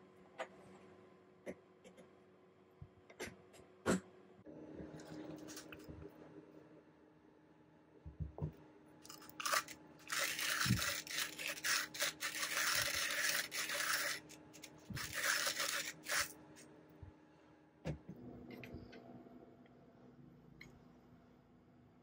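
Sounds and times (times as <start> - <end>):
hand grinder crunching coffee beans: 9.1 - 16.3.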